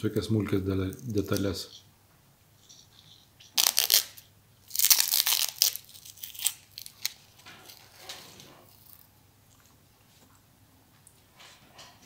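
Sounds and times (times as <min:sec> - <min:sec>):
plastic wrapping crinkling and tearing: 0:03.4 - 0:09.1.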